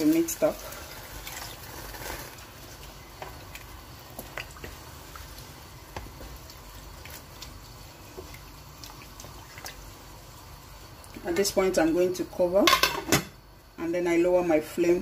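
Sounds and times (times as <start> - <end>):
wet rice sloshing and squelching: 0.0 - 10.5.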